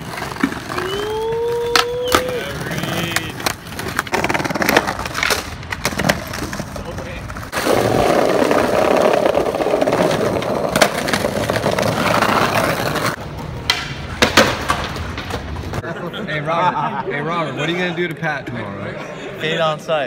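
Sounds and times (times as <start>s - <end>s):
skateboard clacking on ground: 0.0s - 15.8s
skateboard wheels rolling on bricks: 0.0s - 15.9s.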